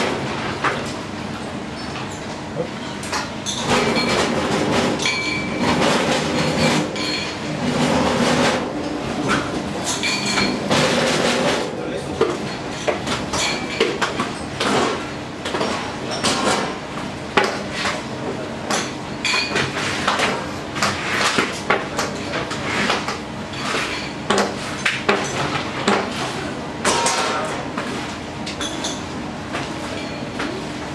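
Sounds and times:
dishes and pans clinking: 3.1 - 8.6, 9.3 - 11.6, 26.8 - 27.6, 29.8 - 30.6.

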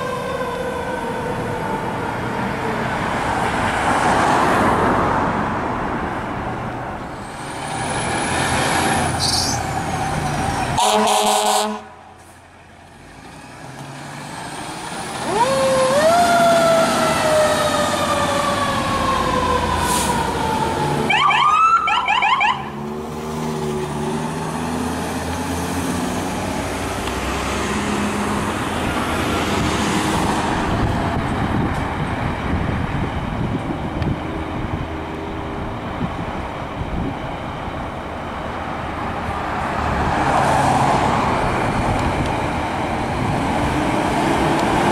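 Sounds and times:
fire truck siren: 0.0 - 3.4, 9.9 - 12.1, 14.8 - 22.9
truck engine and road noise: 0.0 - 44.9
warbling siren: 15.2 - 22.7.

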